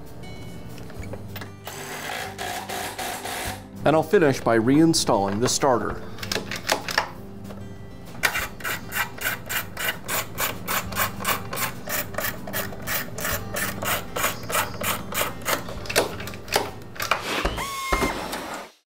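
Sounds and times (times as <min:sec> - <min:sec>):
socket ratchet clicking: 0:08.2 - 0:17.2.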